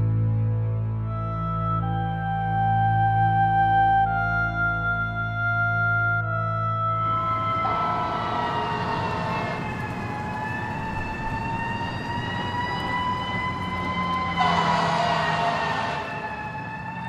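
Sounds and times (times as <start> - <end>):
siren wailing: 1.1 - 17.0.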